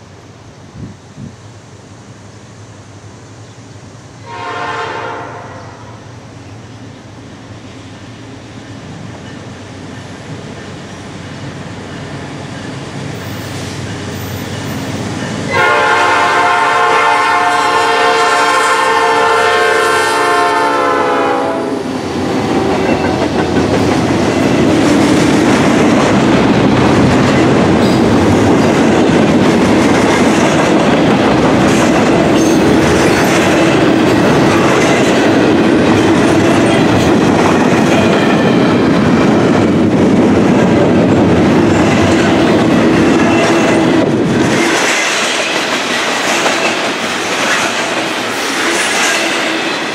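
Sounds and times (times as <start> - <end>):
diesel locomotives approaching: 0.0 - 49.9
train air horn blast: 4.2 - 6.0, 15.5 - 23.0
freight cars rumbling by: 21.7 - 44.6.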